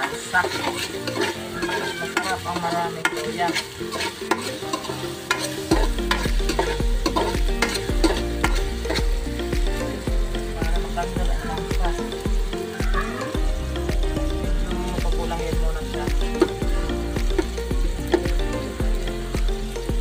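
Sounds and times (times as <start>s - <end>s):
metal spoon clinking against pot: 0.0s - 9.1s
ginger sizzling in oil: 0.0s - 20.0s.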